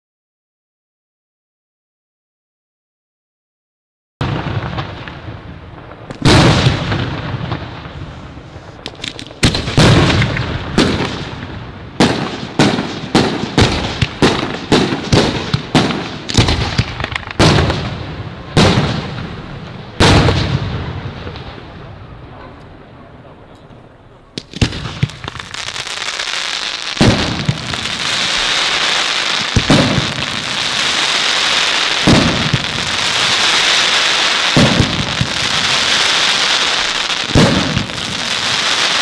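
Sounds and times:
firework booms: 4.2s - 39.0s
faint crackling pops: 8.5s - 9.6s.

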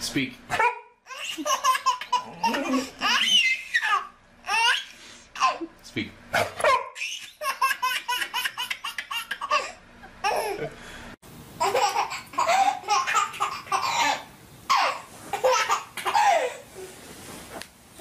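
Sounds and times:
baby laughing: 0.6s - 5.7s, 7.0s - 10.7s, 11.6s - 16.7s.

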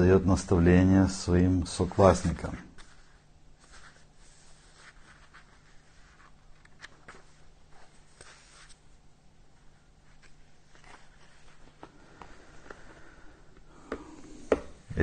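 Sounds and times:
low electrical hum: 0.0s - 15.0s
book pages rustling: 1.8s - 13.2s.

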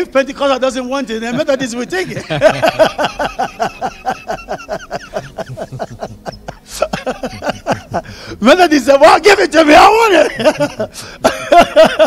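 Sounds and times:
men laughing heartily: 1.3s - 8.4s, 10.1s - 12.0s.

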